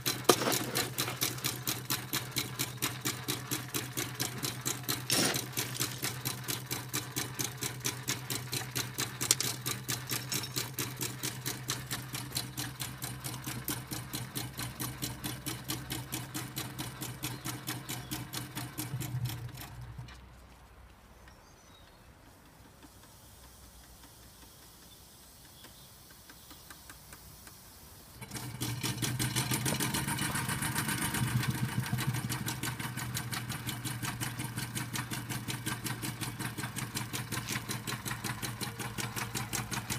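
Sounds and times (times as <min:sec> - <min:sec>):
model steam engine clattering: 0:00.0 - 0:19.9.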